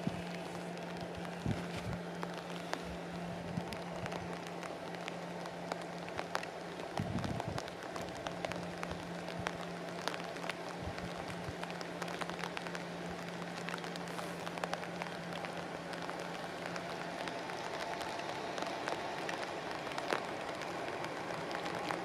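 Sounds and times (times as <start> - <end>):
heavy rain falling: 0.0 - 22.0
raindrops ticking: 0.0 - 22.0.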